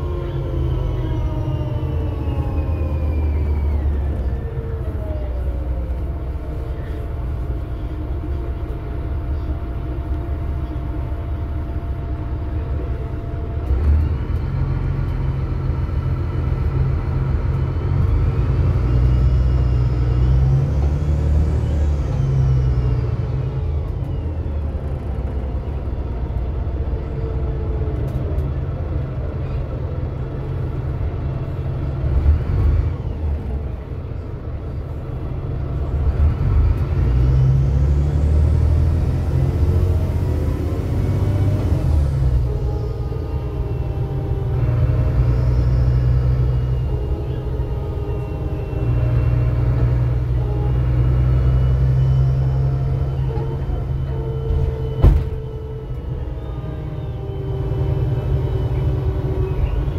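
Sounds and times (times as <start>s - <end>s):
rising whine: 0.0s - 9.4s, 36.2s - 59.9s
bus engine rumbling: 0.0s - 59.9s.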